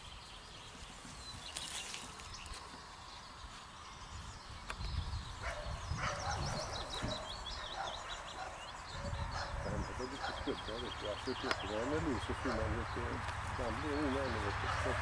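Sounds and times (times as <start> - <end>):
small birds twittering: 0.0 - 15.0
dog barking: 5.4 - 10.6, 12.4 - 12.7, 14.6 - 15.0.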